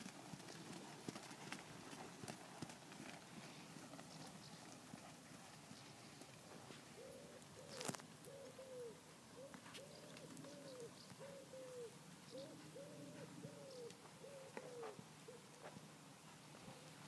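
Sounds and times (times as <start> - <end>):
pigeon cooing: 6.9 - 15.7.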